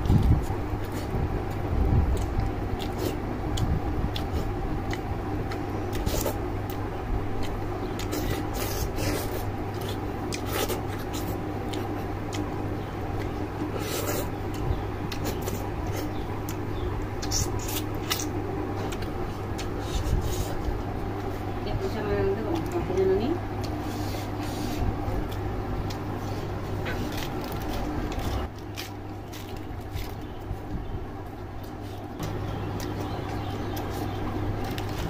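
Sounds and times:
wet chewing smacks and clicks: 0:00.0 - 0:12.5, 0:13.1 - 0:21.3, 0:23.6 - 0:23.8, 0:31.6 - 0:35.0
steady low hum: 0:00.0 - 0:35.0.

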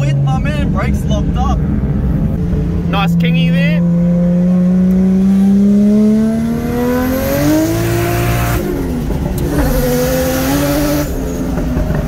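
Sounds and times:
car engine revving: 0:00.0 - 0:12.0.

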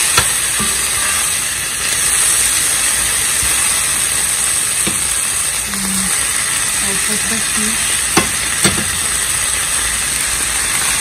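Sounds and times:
vegetables sizzling in oil: 0:00.0 - 0:11.0
tongs knocking against pan: 0:08.2 - 0:08.9.

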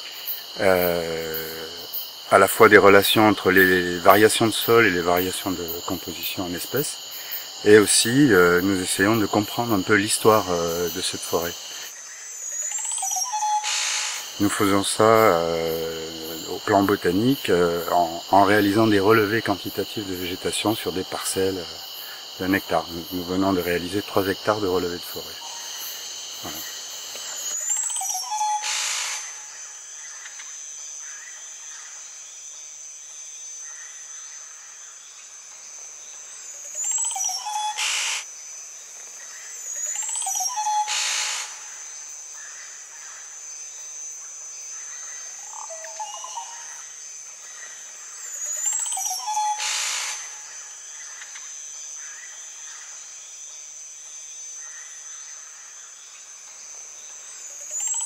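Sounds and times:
high-pitched insect drone: 0:00.0 - 0:58.0
low hum of night creatures: 0:00.0 - 0:58.0.

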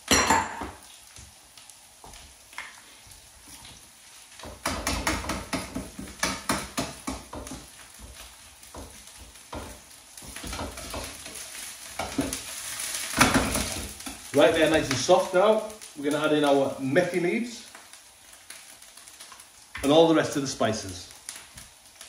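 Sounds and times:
vegetables sizzling in oil: 0:00.0 - 0:22.0.

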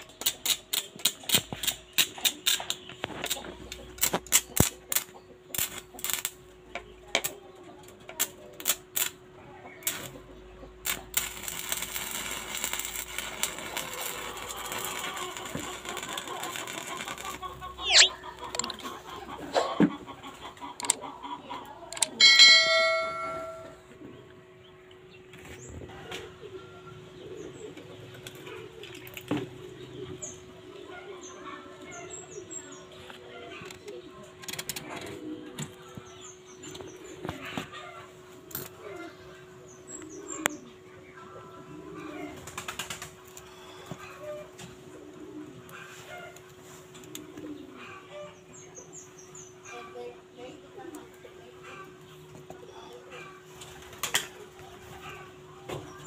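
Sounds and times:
welding arc snaps and crackles: 0:00.0 - 0:06.4, 0:08.2 - 0:09.2, 0:09.8 - 0:10.2, 0:10.8 - 0:18.8
small birds chirping: 0:13.0 - 0:19.4, 0:45.6 - 0:56.0.

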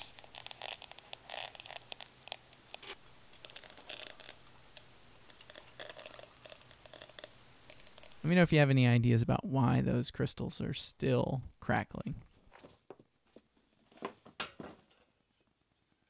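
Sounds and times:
molten metal crackling: 0:00.0 - 0:08.4.

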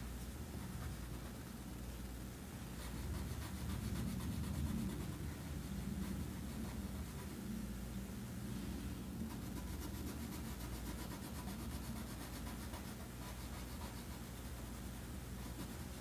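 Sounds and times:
low steady hum: 0:00.0 - 0:16.0
pencil scratching on paper: 0:02.8 - 0:07.3, 0:09.3 - 0:14.8, 0:15.4 - 0:16.0.

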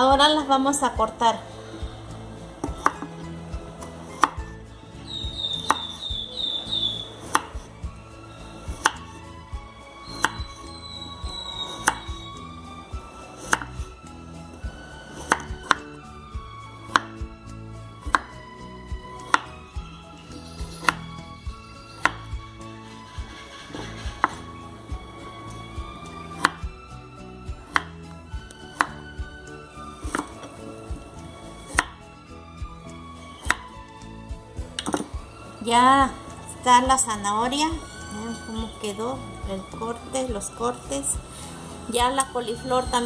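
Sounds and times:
background music: 0:00.0 - 0:43.0
knife slicing carrots: 0:02.6 - 0:04.6, 0:05.2 - 0:06.1, 0:06.7 - 0:07.7, 0:08.5 - 0:09.3, 0:10.0 - 0:12.4, 0:13.0 - 0:14.0, 0:14.6 - 0:16.0, 0:16.8 - 0:17.3, 0:18.0 - 0:22.4, 0:23.2 - 0:26.7, 0:27.4 - 0:32.1, 0:33.3 - 0:33.8, 0:34.6 - 0:35.2.

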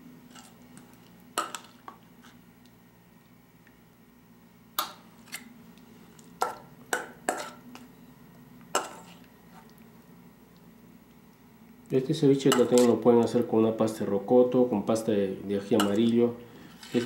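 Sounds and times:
metal spoon clinking on steel bowl: 0:15.8 - 0:16.1.

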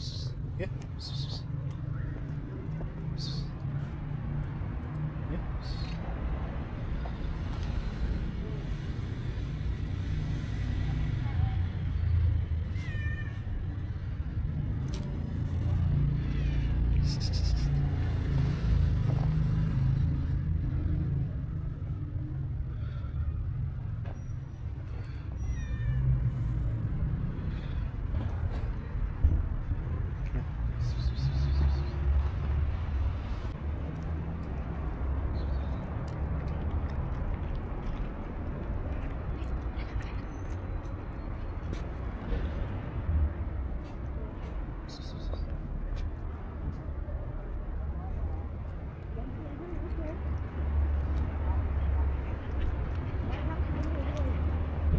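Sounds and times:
low traffic rumble: 0:00.0 - 0:54.9
cat meowing: 0:12.6 - 0:13.6, 0:16.2 - 0:17.0, 0:25.3 - 0:26.4.

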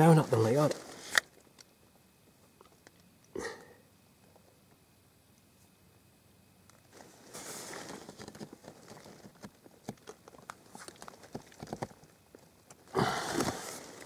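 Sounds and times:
handling noise rustling: 0:00.0 - 0:01.2, 0:06.9 - 0:14.0.

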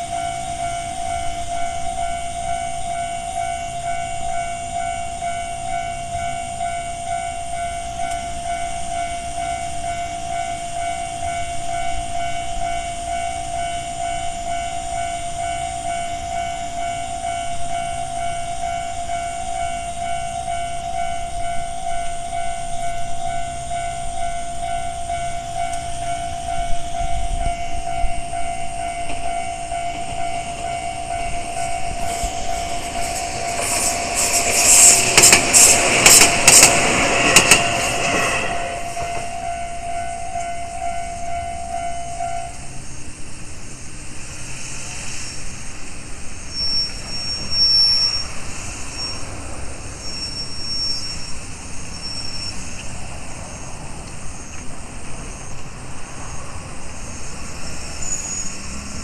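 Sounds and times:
level crossing bell ringing: 0:00.0 - 0:33.4, 0:38.0 - 0:42.8
hiss: 0:30.0 - 0:39.4, 0:42.5 - 0:59.0.

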